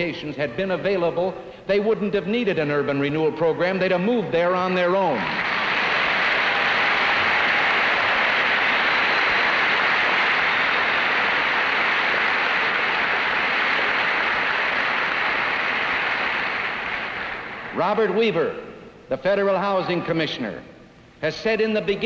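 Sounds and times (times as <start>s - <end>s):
audience applauding: 5.0s - 18.1s.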